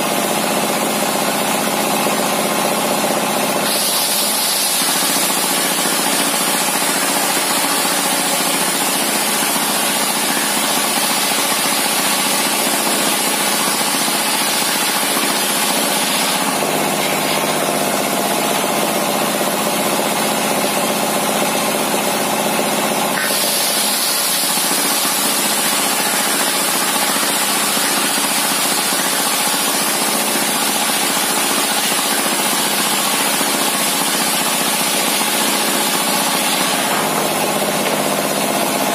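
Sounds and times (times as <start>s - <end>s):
diesel engine running: 35.9s - 38.9s.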